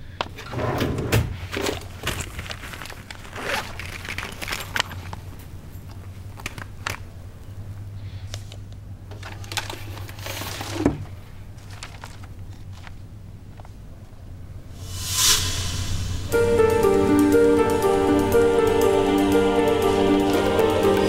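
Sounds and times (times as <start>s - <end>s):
paper rustling: 1.5s - 5.1s, 9.2s - 13.0s
steady low hum: 14.7s - 21.0s.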